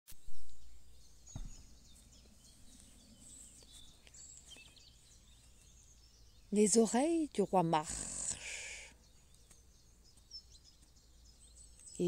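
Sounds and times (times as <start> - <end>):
birds chirping and twittering: 0.2 - 12.0
faint outdoor hush: 0.2 - 12.0
low thud: 1.3 - 2.0.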